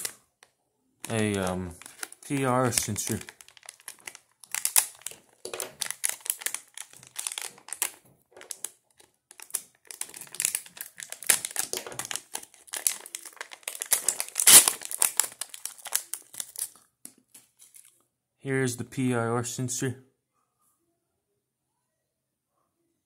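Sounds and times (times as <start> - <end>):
plastic bags crinkling: 1.0 - 18.0.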